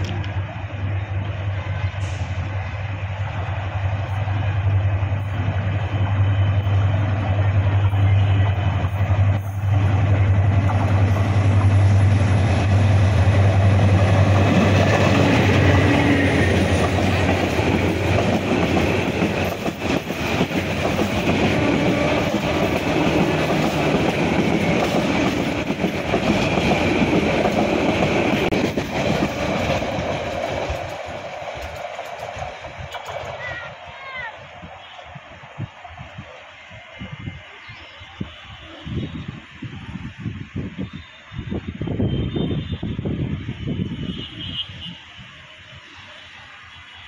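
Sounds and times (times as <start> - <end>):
diesel locomotive drone: 0.0 - 47.0
train wheels clattering over rails: 8.4 - 33.6.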